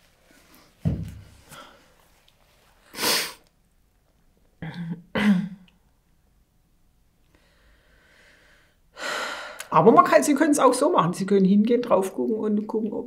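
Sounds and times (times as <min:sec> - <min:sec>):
woman sniffling: 0:02.9 - 0:03.5.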